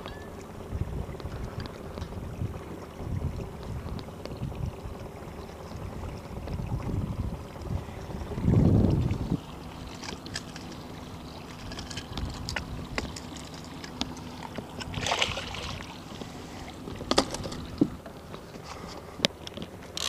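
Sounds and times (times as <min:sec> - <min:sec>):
faint outboard motor hum: 0:00.0 - 0:20.0
fish splashing into water: 0:09.1 - 0:18.4.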